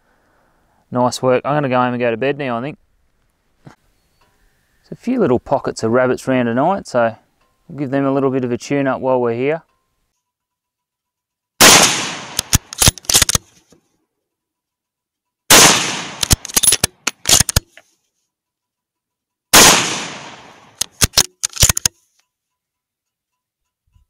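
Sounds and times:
rifle shots: 11.6s - 13.4s, 15.5s - 17.6s, 19.5s - 21.9s
sharp clicks: 12.1s - 13.6s, 15.9s - 17.8s, 20.0s - 22.0s.

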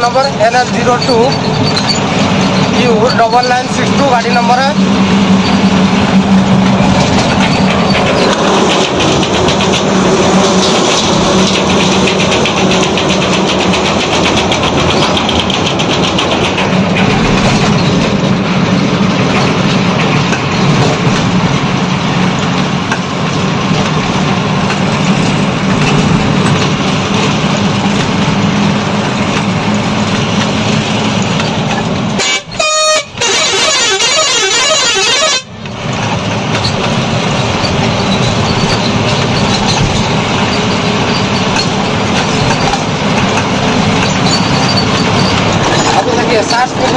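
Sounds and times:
road and wind noise: 0.0s - 46.9s
truck engine drone: 0.0s - 46.9s.

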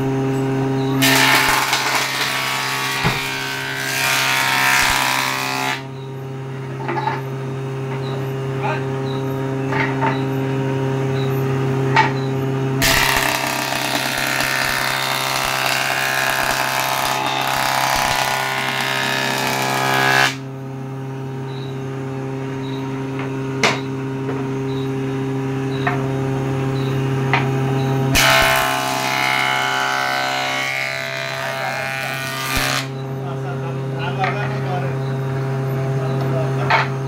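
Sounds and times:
jointer-planer humming: 1.0s - 5.8s, 12.8s - 20.4s, 28.1s - 33.0s
wood planing noise: 1.0s - 5.9s, 12.8s - 20.4s, 28.1s - 32.9s.

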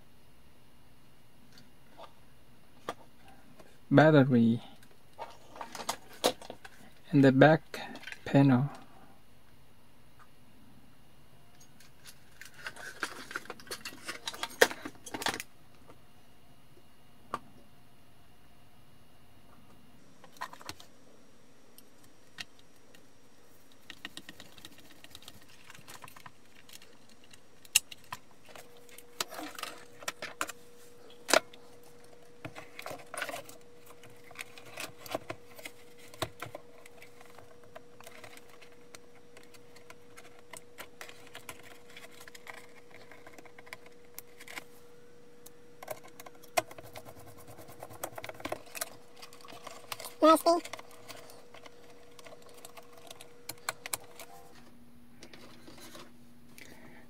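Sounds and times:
hands handling plastic parts: 11.8s - 15.5s, 23.6s - 44.7s, 45.8s - 56.7s.

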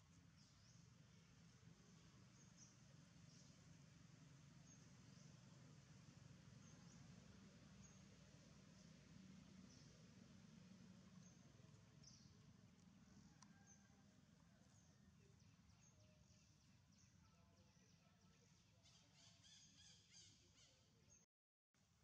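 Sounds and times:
faint outdoor ambience: 0.0s - 22.0s.

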